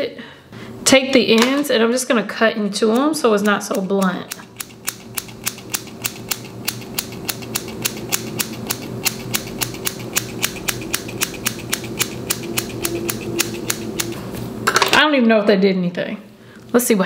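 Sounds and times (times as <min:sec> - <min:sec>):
scissors snipping: 0:02.8 - 0:14.2.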